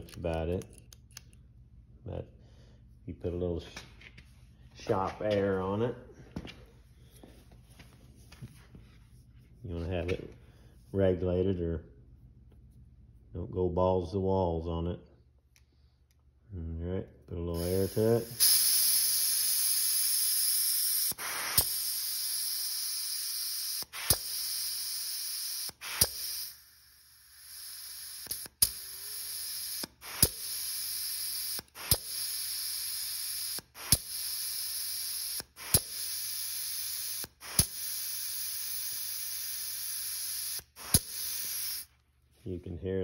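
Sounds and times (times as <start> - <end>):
air hissing through solenoid: 17.6 - 41.9.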